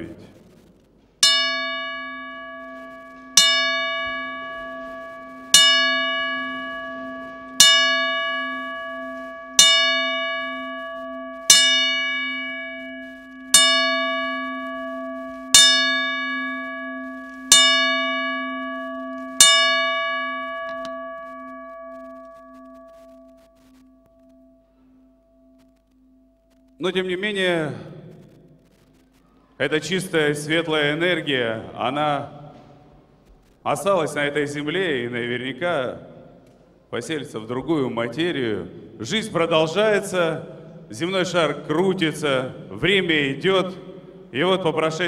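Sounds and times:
bell tolling slowly: 1.2s - 25.8s.

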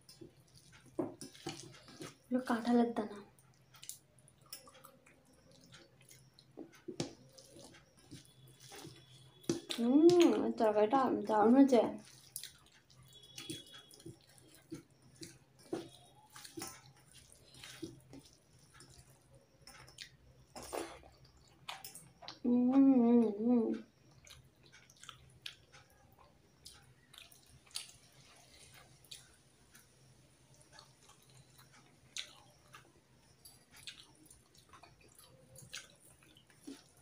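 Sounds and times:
chewing: 0.0s - 2.3s, 3.2s - 10.4s, 12.0s - 22.4s, 23.7s - 37.0s
woman humming: 22.4s - 23.8s.

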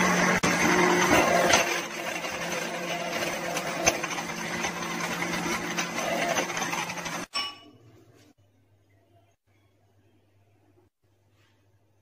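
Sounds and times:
blender motor running: 0.0s - 7.3s.

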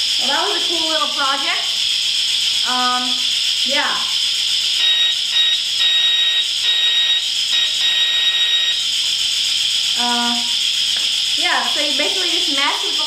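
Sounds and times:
steam hiss: 0.0s - 4.8s, 8.6s - 13.0s
electronic whistle tone: 2.5s - 13.0s.

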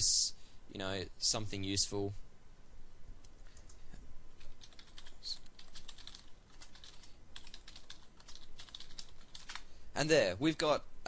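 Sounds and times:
keyboard typing: 4.4s - 9.7s.

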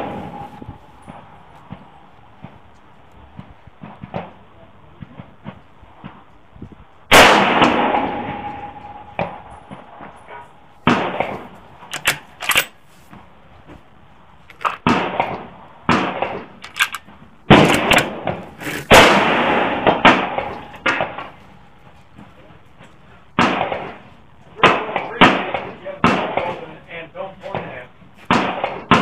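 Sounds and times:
rifle gunshots echoing: 0.0s - 2.1s, 7.1s - 12.8s, 14.5s - 21.4s, 23.4s - 26.8s, 27.6s - 29.0s
rifle bolt clicks and knocks: 11.1s - 12.8s, 14.5s - 15.3s, 16.2s - 19.0s.

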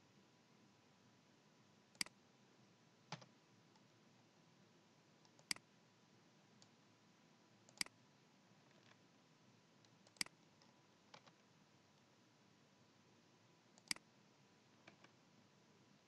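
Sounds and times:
computer mouse clicking: 5.2s - 5.7s, 7.7s - 8.0s, 9.8s - 11.4s, 13.8s - 14.1s.

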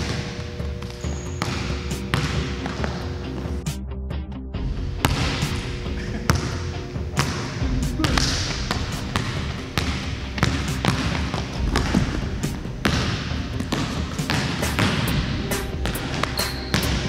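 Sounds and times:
basketball bouncing on court: 0.0s - 3.6s, 4.9s - 17.0s
background music: 0.0s - 17.0s
voices: 5.4s - 17.0s.

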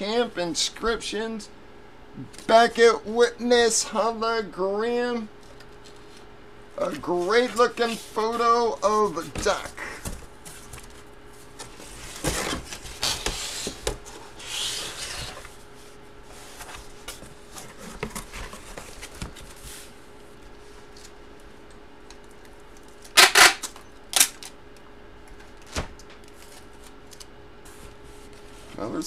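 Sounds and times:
cardboard and paper rustling: 6.8s - 20.0s, 25.4s - 28.9s.

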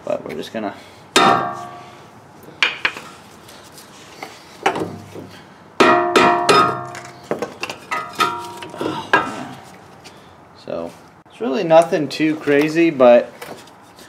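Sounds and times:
mallet knocking on metal brake parts: 1.2s - 1.8s, 5.8s - 7.0s.

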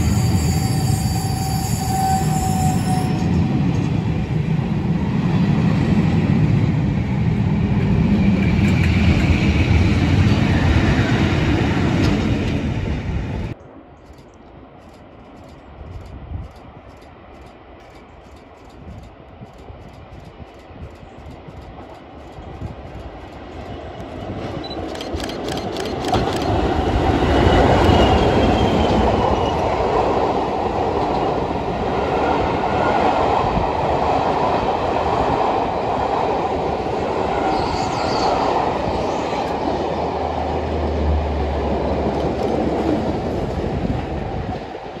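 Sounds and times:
train rolling rumble: 0.0s - 45.0s.

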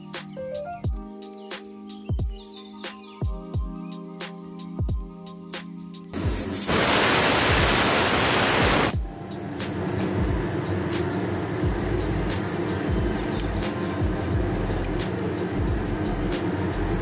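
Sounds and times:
background music with steady beat: 0.0s - 6.7s, 8.8s - 17.0s
pressure cooker steam hiss: 6.2s - 17.0s.

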